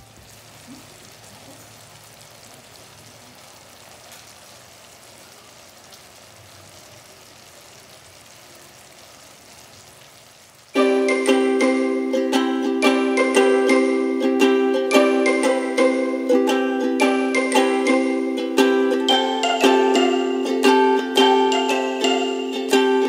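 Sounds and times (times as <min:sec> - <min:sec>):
sauce bubbling and sizzling: 0:00.0 - 0:13.2
loud music: 0:10.8 - 0:23.0.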